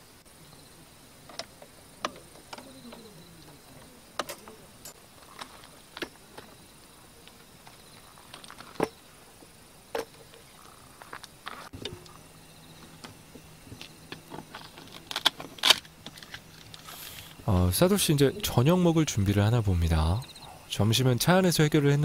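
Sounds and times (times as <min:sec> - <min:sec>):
faint low hum: 0:00.0 - 0:22.0
camp furniture clicking and knocking: 0:01.2 - 0:16.9.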